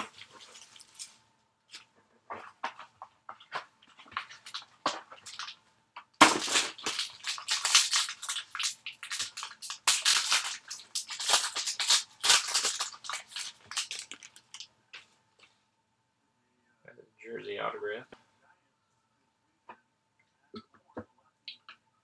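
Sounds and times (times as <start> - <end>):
foil wrapper crinkling: 0.0 - 1.2, 4.0 - 5.6, 6.2 - 14.7.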